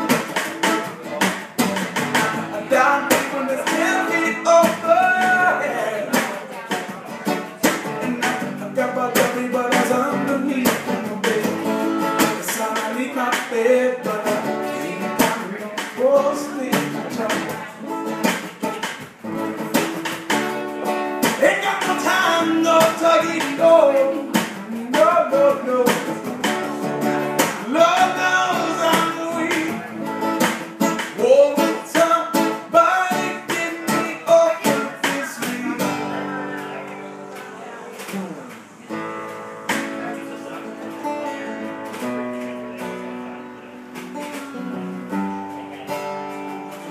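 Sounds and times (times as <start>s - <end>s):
strummed acoustic guitar: 0.0s - 46.9s
man singing: 2.0s - 18.1s, 21.2s - 37.2s.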